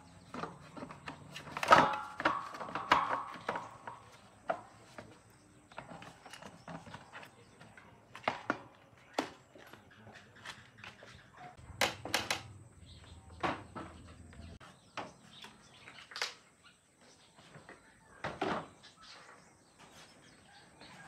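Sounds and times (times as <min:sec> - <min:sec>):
tools clicking and knocking: 0:11.8 - 0:12.6.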